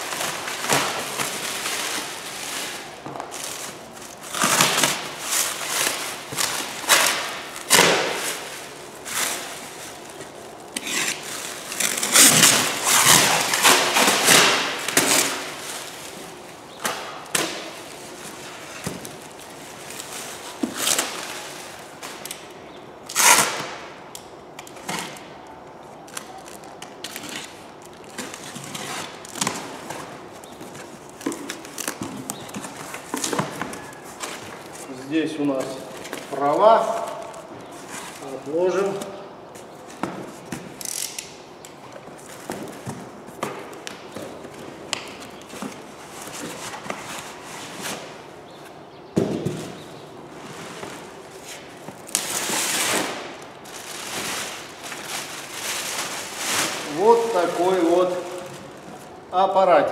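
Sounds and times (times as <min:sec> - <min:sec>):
cardboard rustling and tearing: 0:00.0 - 0:16.4, 0:49.4 - 0:59.2.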